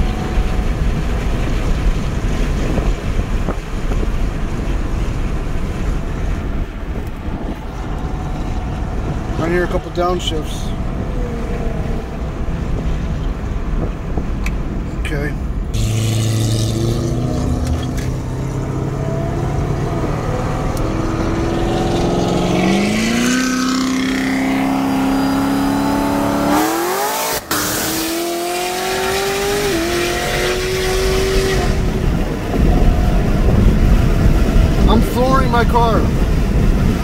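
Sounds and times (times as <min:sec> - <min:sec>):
car engine accelerating hard: 0:15.7 - 0:35.5.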